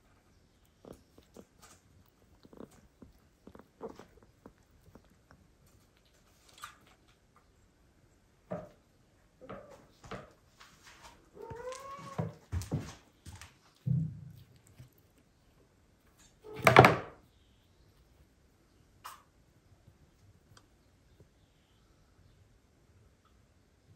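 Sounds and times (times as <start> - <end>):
kitten mewing: 0.8 - 5.1.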